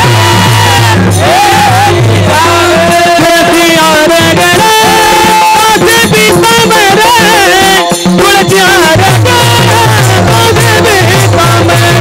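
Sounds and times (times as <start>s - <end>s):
drum strokes low beat: 0.0s - 6.8s
man singing devotional song: 0.0s - 12.0s.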